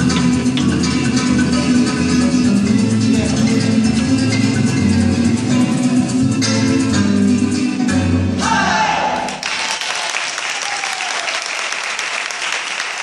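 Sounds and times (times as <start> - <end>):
dance music with plucked strings: 0.0 - 8.4
audience whoops: 9.2 - 13.0
audience applause: 9.3 - 13.0.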